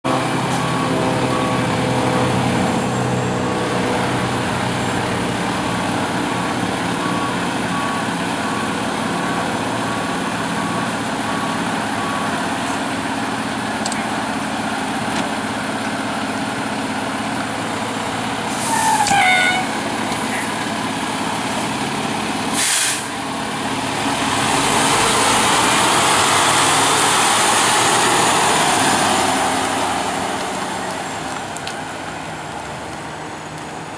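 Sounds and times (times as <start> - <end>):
diesel engine running: 0.1 - 33.9
air brake hiss: 18.5 - 19.2, 22.5 - 23.1.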